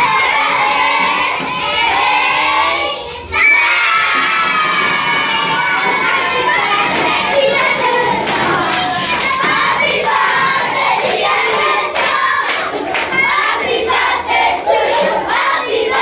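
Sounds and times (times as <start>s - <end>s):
children singing and shouting: 0.0s - 16.0s
hands clapping: 4.2s - 16.0s.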